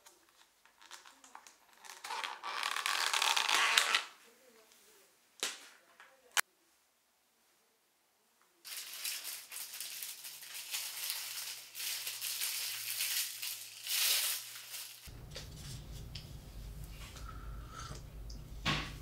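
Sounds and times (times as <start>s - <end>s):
plastic packaging crinkling: 8.7s - 16.1s
low steady hum: 15.1s - 19.0s.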